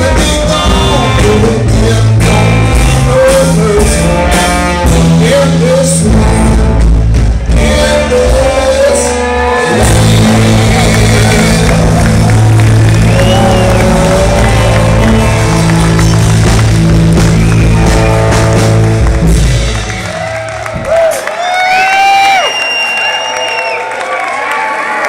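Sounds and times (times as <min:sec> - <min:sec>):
live rock band playing: 0:00.0 - 0:21.3
crowd cheering: 0:09.7 - 0:25.0.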